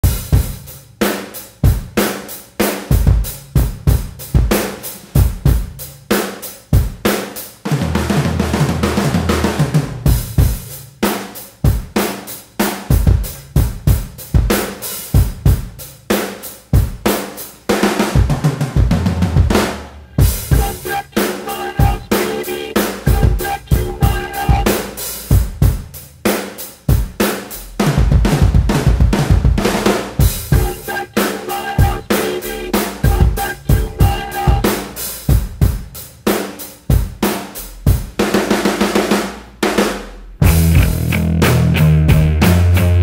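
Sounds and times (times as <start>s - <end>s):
rock drum kit beat: 0.0s - 43.0s
bass guitar line: 19.5s - 25.0s, 30.5s - 35.0s, 40.4s - 43.0s.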